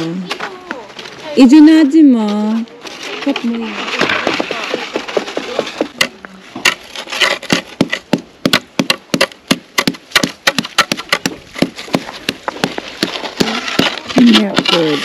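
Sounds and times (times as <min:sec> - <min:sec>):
ice being struck and chipped: 0:06.6 - 0:15.0.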